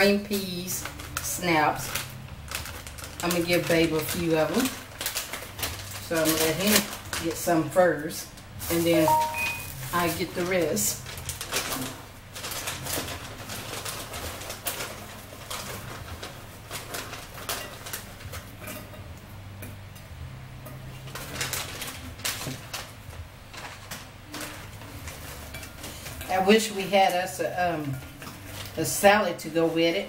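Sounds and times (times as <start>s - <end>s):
plastic snack bag crinkling: 0.0s - 18.6s, 21.0s - 29.1s.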